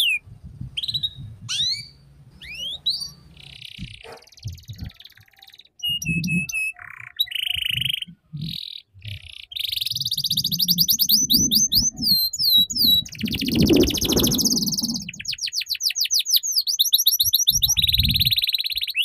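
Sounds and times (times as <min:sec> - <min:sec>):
canary singing: 0:00.0 - 0:19.0.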